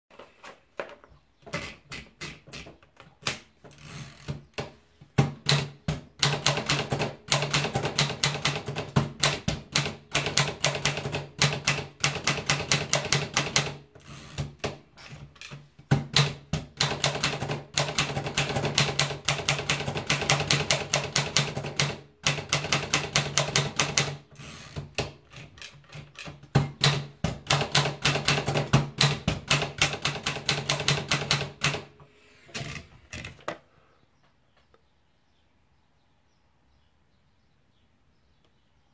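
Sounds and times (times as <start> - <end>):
typewriter keystrokes: 5.2 - 13.8, 15.4 - 31.9.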